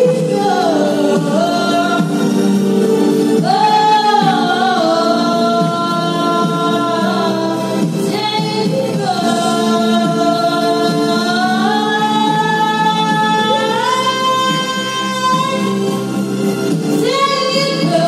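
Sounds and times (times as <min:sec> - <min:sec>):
girl singing into microphone: 0:00.0 - 0:02.5, 0:03.4 - 0:16.0, 0:16.8 - 0:18.0
instrumental backing track: 0:00.0 - 0:18.0.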